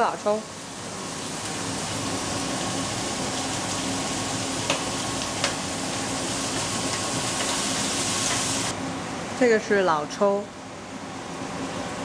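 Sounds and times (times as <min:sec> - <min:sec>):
food sizzling in a wok: 0:00.0 - 0:08.8.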